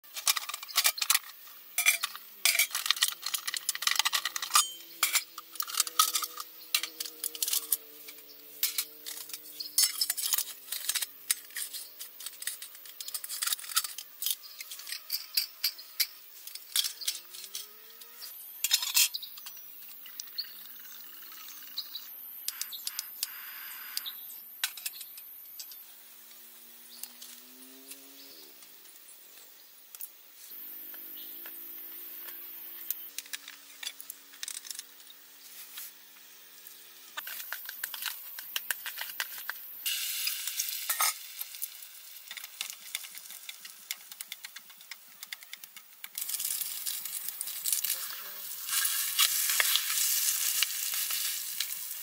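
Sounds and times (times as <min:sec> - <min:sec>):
metal pots clinking and clanking: 0:00.1 - 0:07.8, 0:08.6 - 0:17.2, 0:37.2 - 0:41.6.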